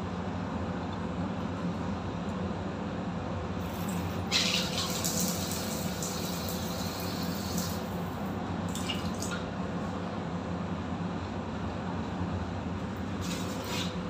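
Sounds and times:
water gushing from tap: 3.6s - 9.4s, 13.2s - 14.0s
short spurts of water: 3.6s - 9.5s, 13.2s - 14.0s.

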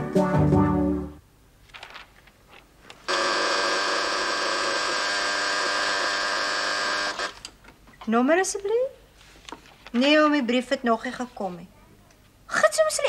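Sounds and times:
switchboard call buzzer: 3.1s - 7.4s.

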